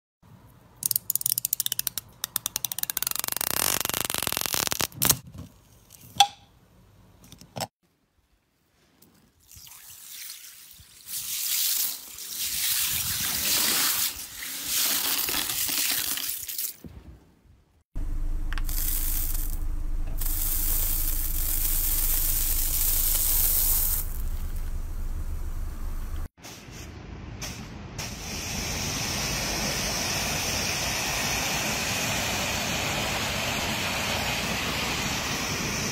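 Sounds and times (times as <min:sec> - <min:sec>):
zipper being pulled open: 0:03.0 - 0:05.2
car engine humming: 0:18.0 - 0:26.3.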